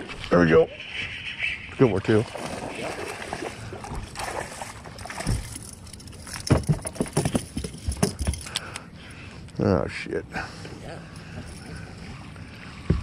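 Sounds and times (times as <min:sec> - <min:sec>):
gear being handled on boat: 0:03.7 - 0:08.8, 0:10.7 - 0:13.0.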